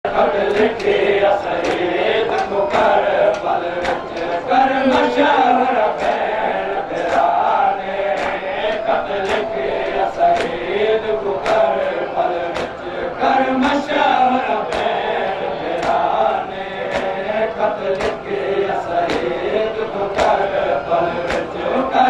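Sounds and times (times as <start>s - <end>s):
men chanting a lament: 0.1s - 22.0s
hands slapping chests: 1.6s - 4.3s, 8.1s - 9.5s, 10.2s - 10.6s, 11.4s - 11.8s, 12.5s - 12.8s, 14.7s - 15.0s, 15.7s - 16.1s, 16.9s - 17.2s, 17.9s - 18.3s, 19.0s - 19.4s, 20.1s - 20.4s, 21.2s - 21.6s.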